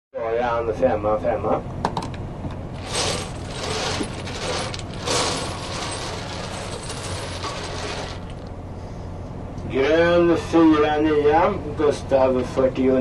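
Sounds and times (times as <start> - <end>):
steady low hum: 0.2 - 13.0
bingo balls rattling in machine: 2.7 - 8.5.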